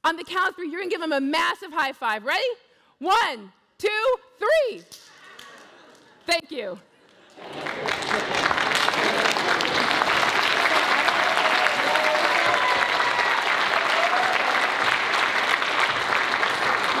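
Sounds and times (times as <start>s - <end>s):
large audience applauding: 7.2s - 17.0s.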